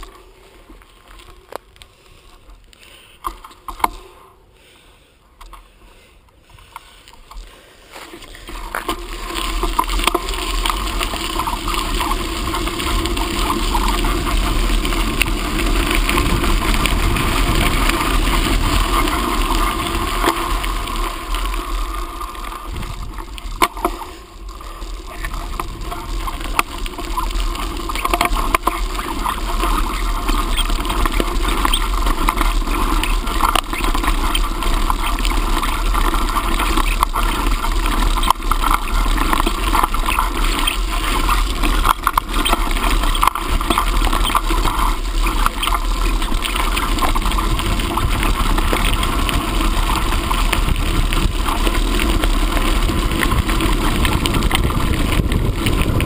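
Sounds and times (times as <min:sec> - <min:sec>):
bike clicks and rattles: 0:00.0 - 0:04.2, 0:05.4 - 0:56.0
bicycle tyre noise: 0:00.0 - 0:56.0
wind buffeting microphone: 0:22.6 - 0:23.6, 0:46.8 - 0:56.0.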